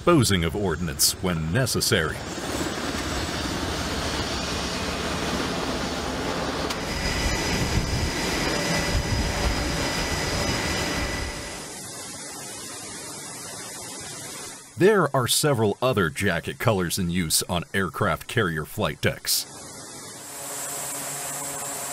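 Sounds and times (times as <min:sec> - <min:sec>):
jet engines running: 0:00.0 - 0:21.9
wind: 0:00.0 - 0:21.9
steady hiss: 0:09.8 - 0:21.9.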